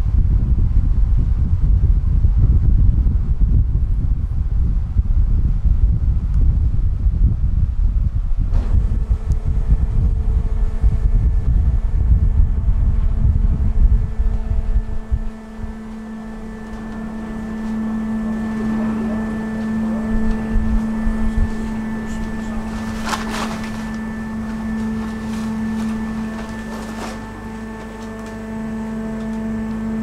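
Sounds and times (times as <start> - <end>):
wind on microphone: 0.0 - 26.7
ferry engine humming: 7.8 - 30.0.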